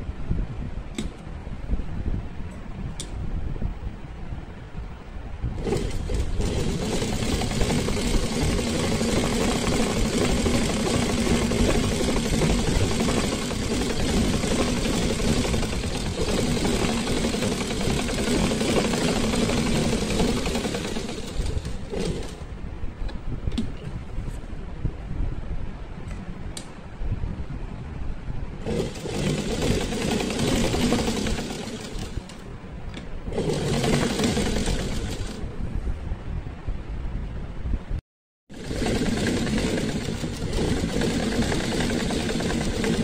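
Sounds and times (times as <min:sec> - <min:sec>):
sewing machine stitching: 0:05.6 - 0:22.5, 0:28.6 - 0:32.4, 0:33.2 - 0:35.5, 0:38.5 - 0:43.0.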